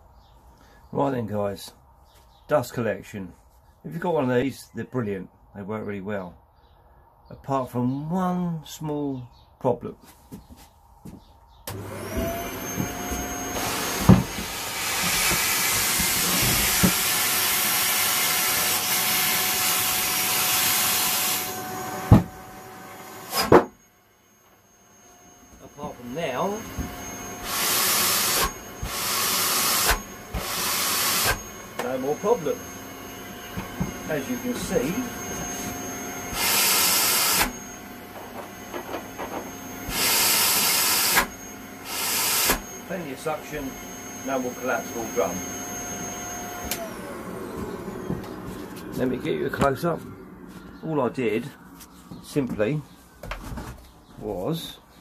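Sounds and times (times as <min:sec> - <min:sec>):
vacuum cleaner motor whining: 0:11.6 - 0:53.7.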